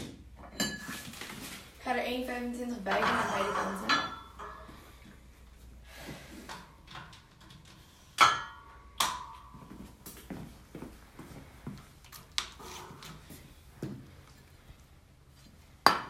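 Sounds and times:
weight plates clanking on barbell: 2.9s - 4.7s.

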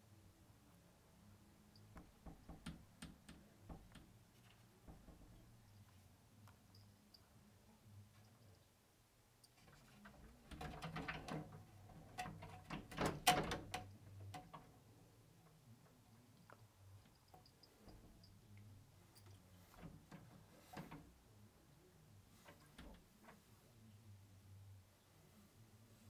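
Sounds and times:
cat scratching wooden door: 2.0s - 4.2s, 4.8s - 5.7s, 9.7s - 14.7s.

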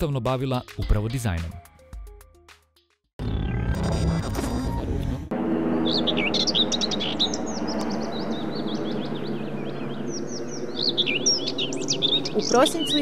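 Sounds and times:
outdoor ambient hum: 3.2s - 13.0s
small birds chirping: 5.8s - 13.0s.

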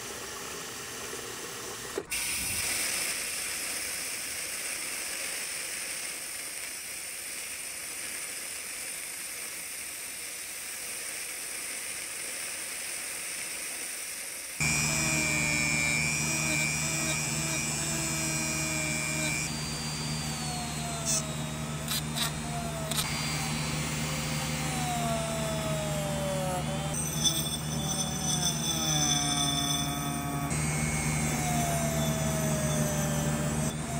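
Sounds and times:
rotary tool whining: 14.6s - 33.9s.

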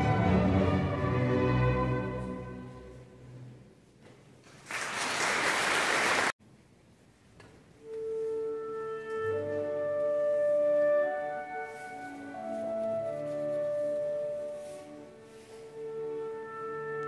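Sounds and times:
orchestral strings playing: 0.0s - 3.7s.

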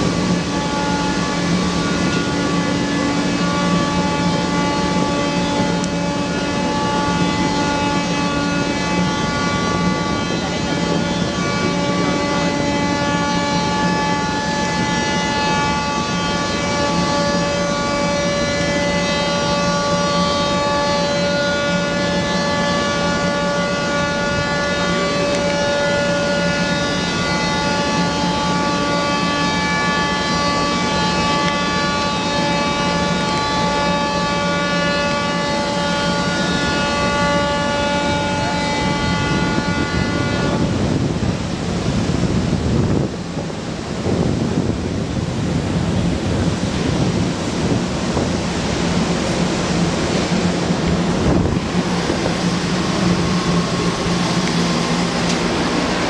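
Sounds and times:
ships' horns blasting: 0.0s - 56.0s.

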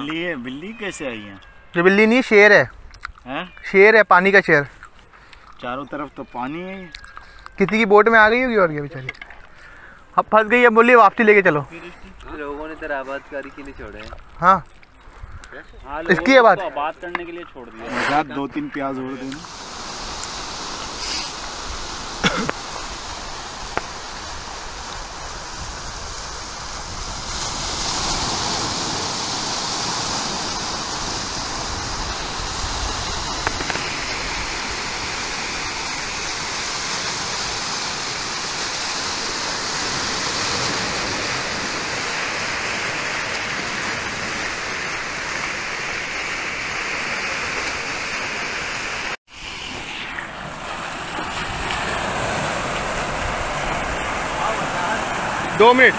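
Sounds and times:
surf breaking on pebbly shore: 19.4s - 55.9s.

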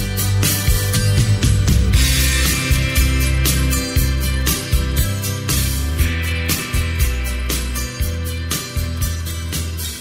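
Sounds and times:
bass line: 0.0s - 10.0s
strummed guitar: 0.0s - 10.0s
drum beat: 0.6s - 9.2s.

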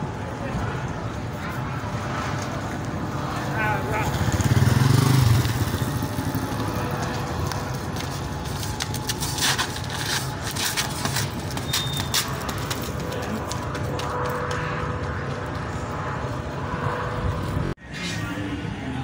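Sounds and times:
motorcycle engine running: 3.2s - 9.1s.

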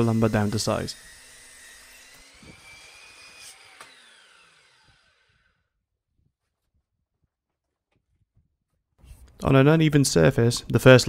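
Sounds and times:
saw blade spinning down: 0.0s - 5.7s
mitre saw motor whining: 0.0s - 5.8s.

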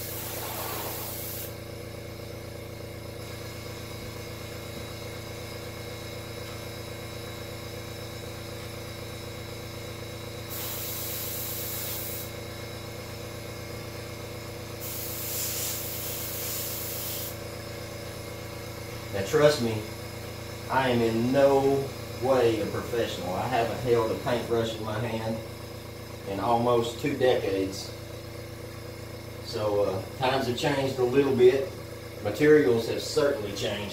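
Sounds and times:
airbrush hissing: 0.0s - 1.6s, 10.5s - 12.3s, 14.8s - 17.4s
air compressor motor humming: 0.0s - 33.9s.

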